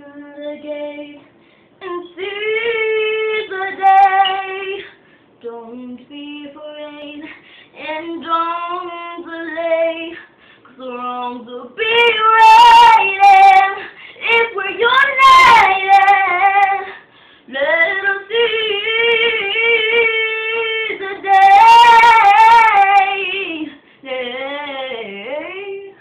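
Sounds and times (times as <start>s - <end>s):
girl breathing: 10.2s - 10.7s, 13.8s - 14.2s, 16.9s - 17.5s
girl singing unaccompanied: 10.8s - 16.9s, 17.5s - 26.0s.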